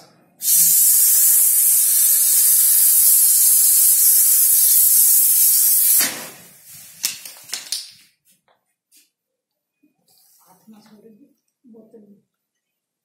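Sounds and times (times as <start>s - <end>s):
gas hissing from bottle: 0.4s - 7.0s.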